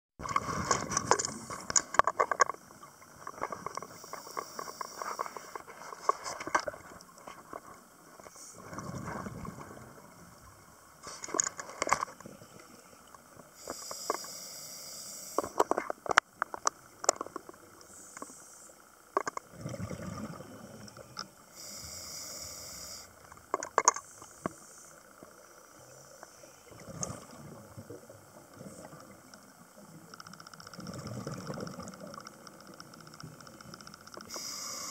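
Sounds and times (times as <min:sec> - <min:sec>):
regulator hissing inhale: 0:03.9 - 0:05.7, 0:13.5 - 0:15.6, 0:17.9 - 0:18.8, 0:20.8 - 0:23.3, 0:34.2 - 0:34.9
bubbling exhalations: 0:19.5 - 0:20.7
scattered clicks: 0:30.1 - 0:34.6.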